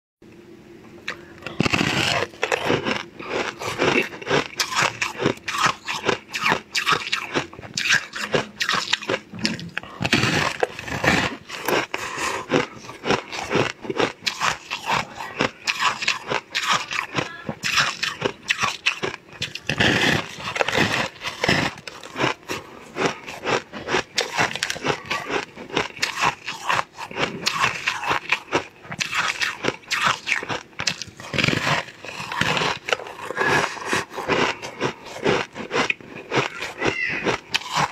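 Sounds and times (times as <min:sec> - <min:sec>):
person chewing crunchy food: 0:01.0 - 0:37.9.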